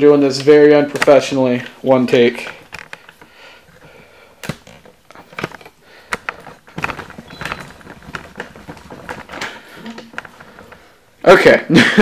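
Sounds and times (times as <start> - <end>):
clatter and rustle of handling: 2.4 - 11.0
camera handling knocks and clicks: 4.4 - 9.4.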